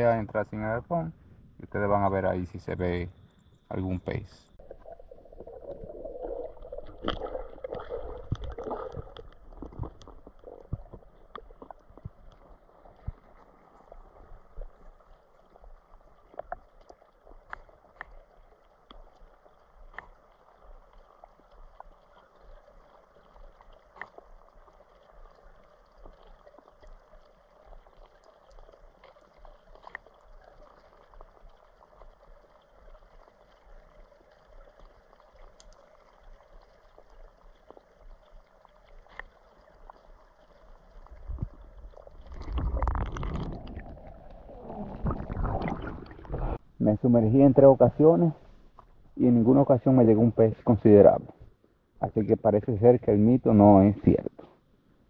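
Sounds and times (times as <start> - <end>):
steady underwater noise: 0.0 - 55.0
underwater gurgling and knocks: 4.6 - 19.2, 36.8 - 46.7
sharp underwater clicks: 6.6 - 13.4, 16.3 - 19.3, 34.7 - 36.2.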